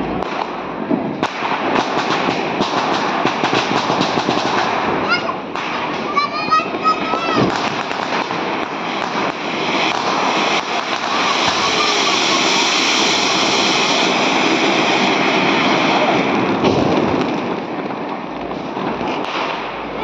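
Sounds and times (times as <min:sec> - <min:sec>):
firework fountain rushing hiss: 0:00.0 - 0:20.0
sharp crack: 0:00.0 - 0:20.0.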